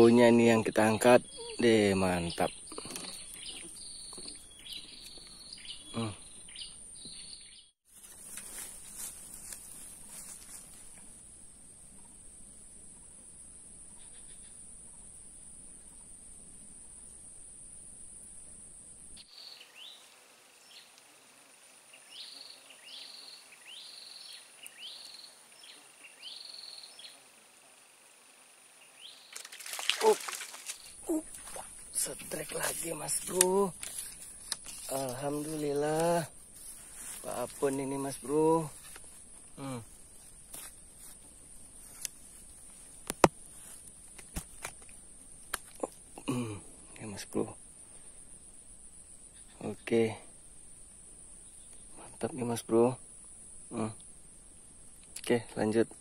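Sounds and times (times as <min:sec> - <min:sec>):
bird calling: 0:01.0 - 0:07.6, 0:29.0 - 0:36.0
clicks and rustles in dry grass: 0:07.9 - 0:11.2, 0:29.2 - 0:46.0
steady high hiss: 0:07.9 - 0:56.0
high insect drone: 0:08.0 - 0:56.0
fish splashing at water surface: 0:29.3 - 0:31.8.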